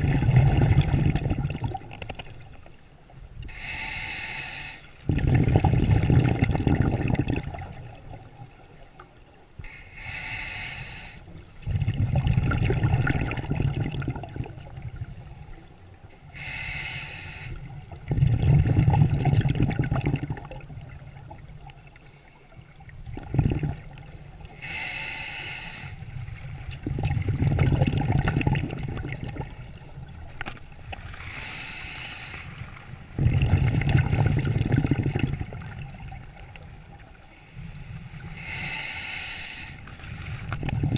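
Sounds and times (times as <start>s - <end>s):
bubbling exhale underwater: 0.0s - 2.3s, 5.0s - 8.3s, 11.6s - 15.1s, 17.9s - 21.4s, 23.0s - 24.8s, 26.6s - 29.7s, 33.1s - 36.2s, 40.5s - 40.9s
regulator hissing inhale: 3.5s - 5.0s, 9.6s - 11.5s, 16.3s - 17.7s, 24.1s - 26.3s, 31.2s - 32.8s, 37.2s - 40.1s.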